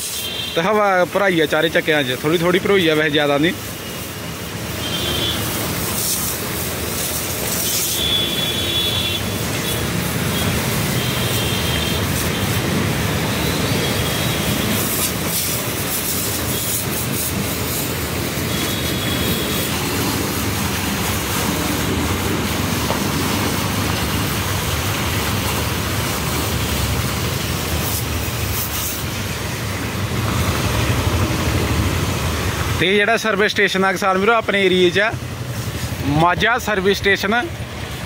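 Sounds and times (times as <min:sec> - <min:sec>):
high-pressure water jet hissing: 0:00.0 - 0:38.0
pump motor humming: 0:03.6 - 0:32.8.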